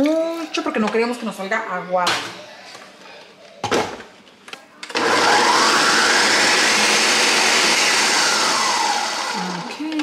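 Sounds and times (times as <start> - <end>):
blender motor running: 4.9 - 9.8.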